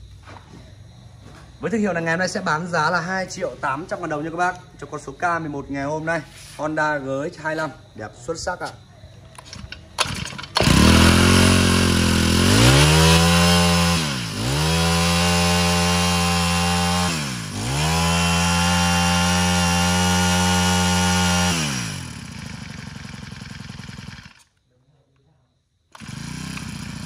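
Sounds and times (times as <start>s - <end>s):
brush cutter engine revving: 9.4s - 24.5s, 25.9s - 27.0s.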